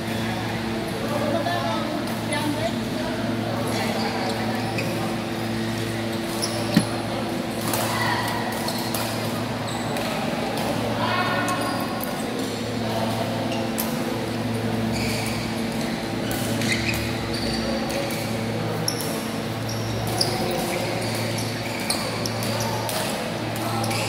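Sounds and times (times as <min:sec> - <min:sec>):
shoes squeaking on court floor: 0:03.6 - 0:07.6, 0:08.3 - 0:10.3, 0:13.4 - 0:24.0
racket striking shuttlecock: 0:06.7 - 0:09.1.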